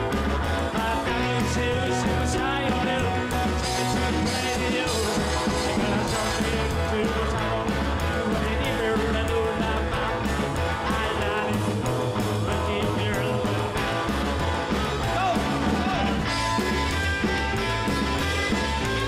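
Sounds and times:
rock and roll music: 0:00.0 - 0:19.0.

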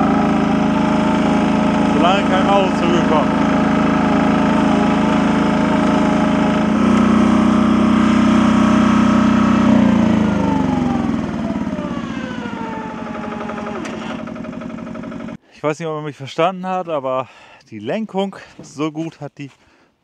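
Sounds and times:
high steady whine: 0:00.0 - 0:15.4
small machine engine running: 0:00.0 - 0:15.4.

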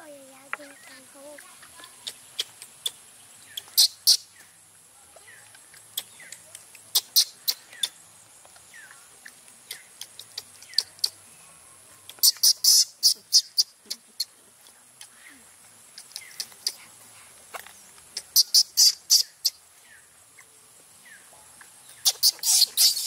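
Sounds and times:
baby monkey squealing: 0:01.9 - 0:04.3, 0:06.0 - 0:08.0, 0:09.2 - 0:11.2, 0:12.2 - 0:14.3, 0:18.2 - 0:19.6, 0:22.0 - 0:23.0.

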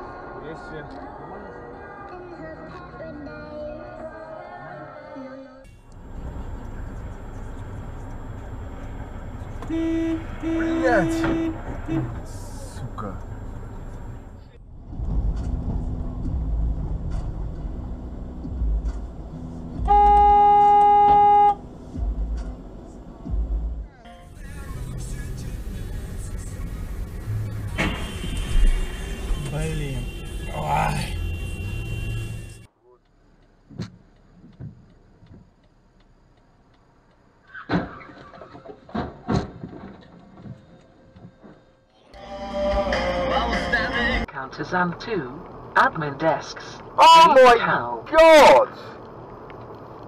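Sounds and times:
engine and road rumble: 0:05.6 - 0:50.0
car horn long blast: 0:09.6 - 0:12.2, 0:19.8 - 0:21.6, 0:27.8 - 0:32.7
faint regular ticking: 0:32.9 - 0:37.5.

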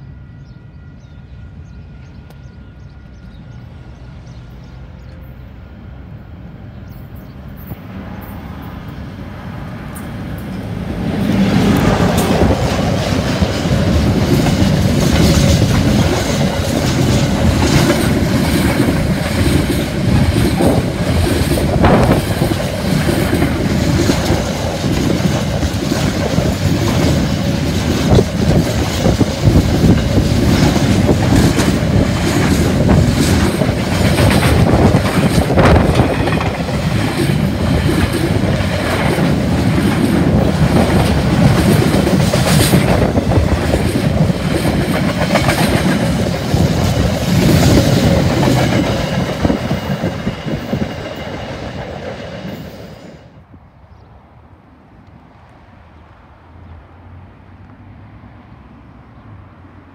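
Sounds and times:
freight train wheels rumbling: 0:00.0 - 0:53.6
train wagons clanking: 0:09.7 - 0:52.9.

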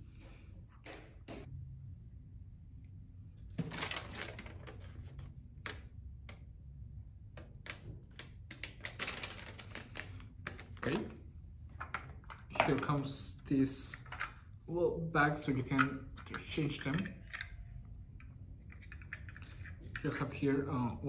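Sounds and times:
paper crinkling and rustling: 0:03.6 - 0:05.9, 0:08.1 - 0:11.1.

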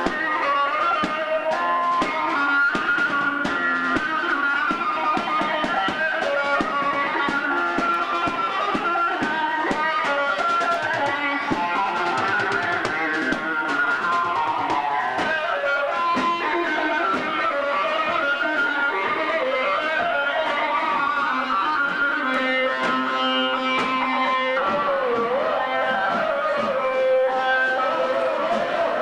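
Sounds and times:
steady drum beat: 0:00.0 - 0:19.2
plucked string melody: 0:00.0 - 0:28.8.

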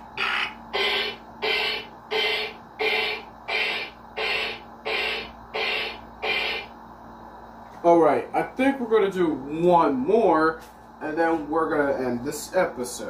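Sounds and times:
electronic toy rhythmic beat: 0:00.1 - 0:06.7.

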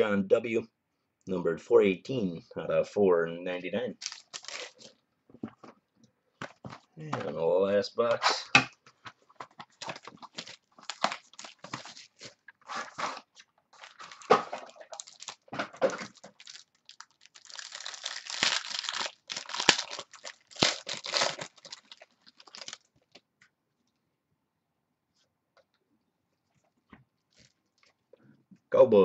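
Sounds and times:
plastic wrapping crinkling and tearing: 0:04.0 - 0:05.0, 0:09.6 - 0:23.2.

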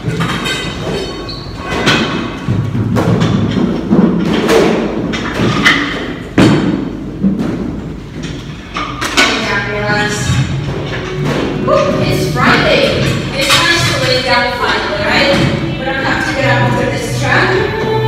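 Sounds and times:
pop dance music with vocals: 0:15.1 - 0:18.0.

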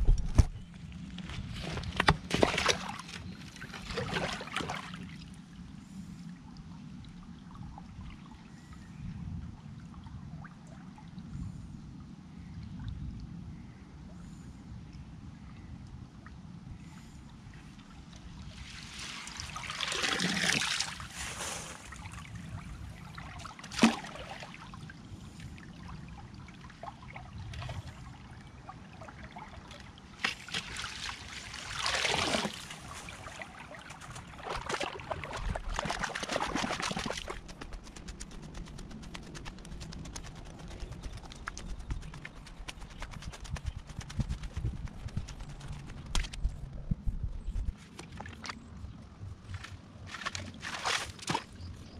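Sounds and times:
water sloshing and splashing: 0:01.1 - 0:05.4, 0:17.0 - 0:47.0, 0:47.7 - 0:51.9.

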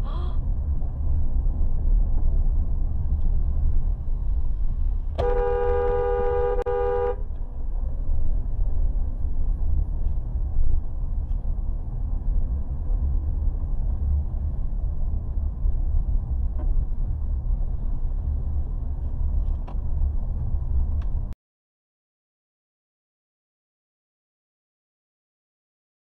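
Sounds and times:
car driving rumble: 0:00.0 - 0:21.4
car horn: 0:05.2 - 0:07.3.

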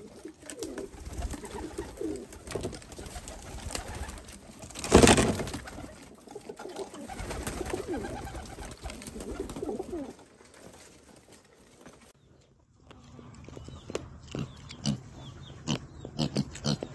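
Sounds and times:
pigeons cooing: 0:00.0 - 0:10.3
pigeon wings flapping: 0:00.0 - 0:12.1.

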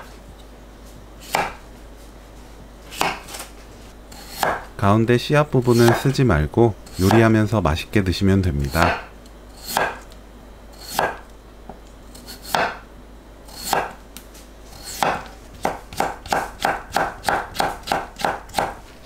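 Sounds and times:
knife slicing on wooden board: 0:01.2 - 0:01.6
quick knife chops: 0:01.2 - 0:01.6, 0:02.9 - 0:03.4, 0:04.2 - 0:04.7, 0:05.7 - 0:06.1, 0:06.9 - 0:07.3, 0:08.7 - 0:10.1, 0:10.8 - 0:11.2, 0:12.3 - 0:12.8, 0:13.5 - 0:14.0, 0:14.7 - 0:18.8.

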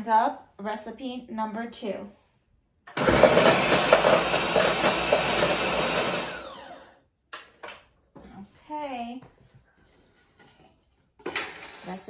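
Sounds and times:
blender running: 0:03.0 - 0:07.0.

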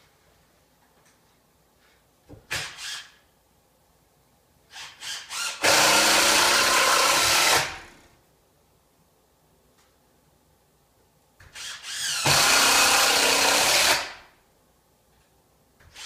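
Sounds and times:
cordless drill driving screw: 0:04.7 - 0:07.9, 0:11.5 - 0:14.2.

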